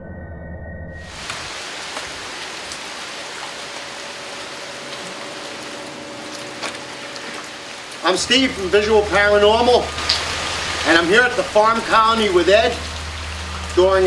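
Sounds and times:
low droning synth tone: 0:00.0 - 0:01.2, 0:04.1 - 0:14.0
steady rain: 0:01.1 - 0:14.0.

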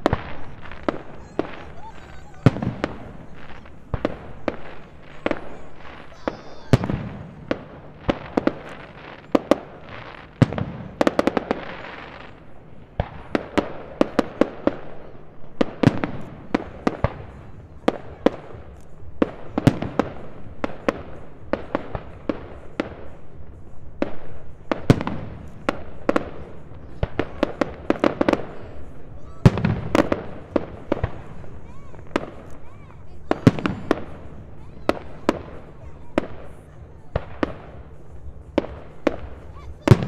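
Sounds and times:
fireworks bangs: 0:00.0 - 0:40.0.

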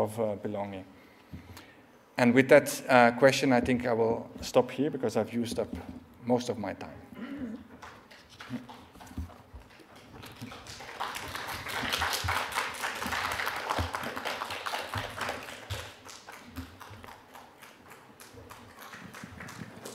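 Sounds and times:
audience applauding: 0:09.7 - 0:19.9.

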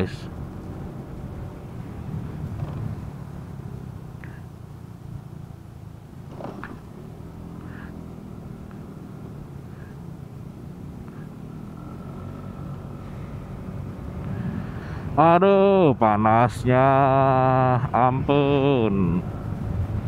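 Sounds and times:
road noise: 0:00.0 - 0:20.0
motorcycle engine running: 0:00.3 - 0:14.8.

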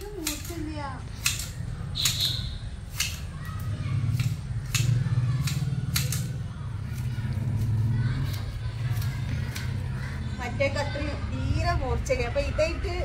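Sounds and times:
garden shears snipping: 0:00.0 - 0:10.2.

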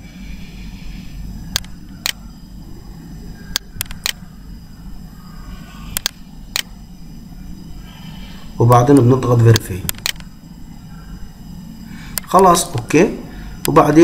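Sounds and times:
low background hum: 0:00.0 - 0:14.0
computer mouse clicking: 0:01.5 - 0:02.2, 0:03.5 - 0:04.2, 0:05.9 - 0:06.7, 0:09.5 - 0:10.3.

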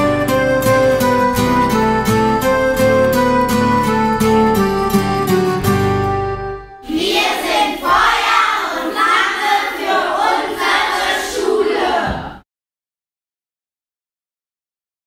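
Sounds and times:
acoustic guitar strumming: 0:00.0 - 0:06.8
children's voices: 0:06.8 - 0:12.4.

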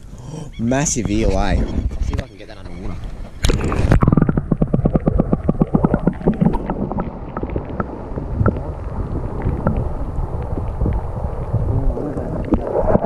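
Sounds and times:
muffled underwater rumble: 0:01.0 - 0:13.0
clicks and ticks against camera: 0:03.4 - 0:06.8.

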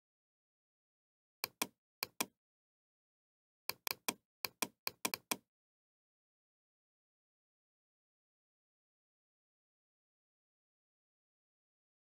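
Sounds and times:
computer mouse clicking: 0:01.4 - 0:02.3, 0:03.7 - 0:05.4.

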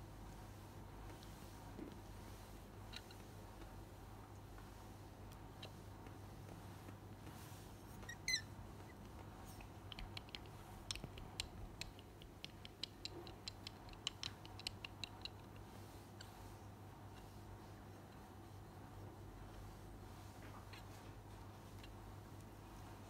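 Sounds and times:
low steady room hum: 0:00.0 - 0:23.0
kitten high squeak: 0:08.1 - 0:08.5
kittens' light clicks: 0:09.6 - 0:15.7.

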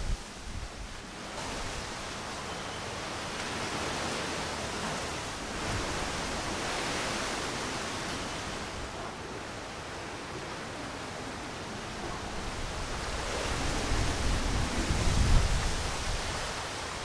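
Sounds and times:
wind rustling tree leaves: 0:00.0 - 0:17.0
wind hitting microphone: 0:12.0 - 0:17.0.

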